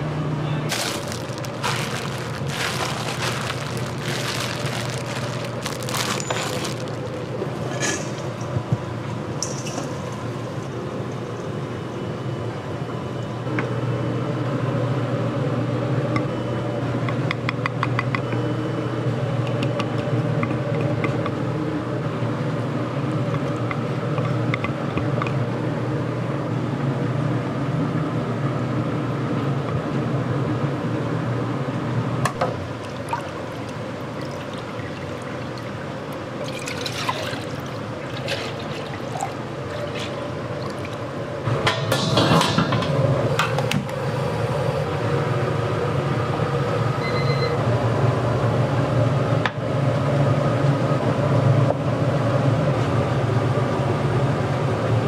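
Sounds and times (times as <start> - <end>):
kitchen equipment hum: 0.0 - 10.4, 31.6 - 45.8
plastic wrap crackling: 0.7 - 7.6.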